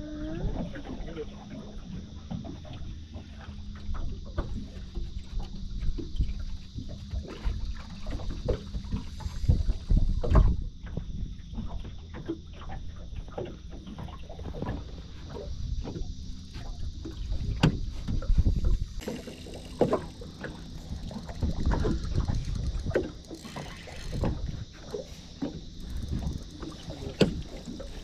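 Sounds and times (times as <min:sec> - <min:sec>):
waves slapping boat hull: 0:00.4 - 0:28.0.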